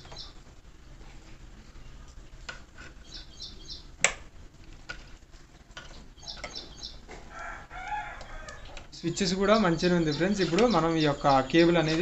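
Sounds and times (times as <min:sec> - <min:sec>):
small birds chirping: 0:00.0 - 0:00.6, 0:01.6 - 0:04.1, 0:05.5 - 0:12.0.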